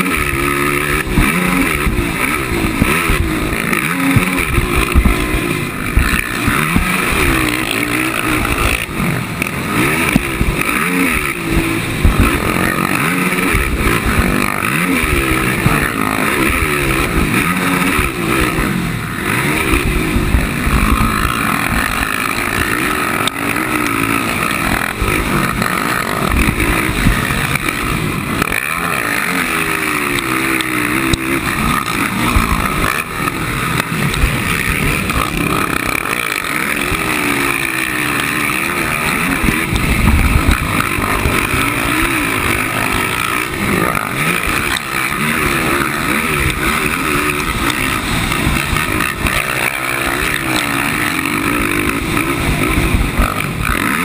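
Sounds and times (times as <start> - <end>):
racing atv engine revving: 0.0 - 54.0
wind buffeting microphone: 39.4 - 42.6.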